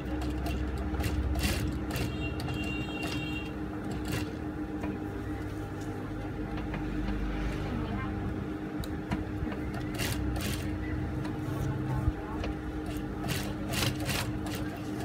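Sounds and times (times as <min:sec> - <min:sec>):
sewing machine humming: 0:00.0 - 0:05.4, 0:09.6 - 0:15.0.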